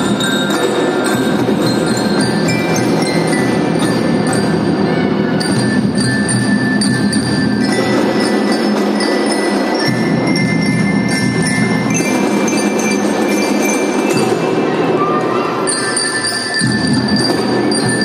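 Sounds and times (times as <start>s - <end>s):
marching band drums: 0.0s - 15.2s, 16.6s - 18.0s
glockenspiel melody: 0.0s - 18.0s.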